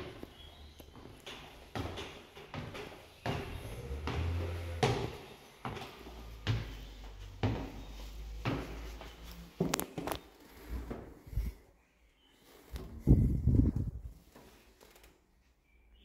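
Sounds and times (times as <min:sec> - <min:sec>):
footsteps: 0:00.0 - 0:11.7.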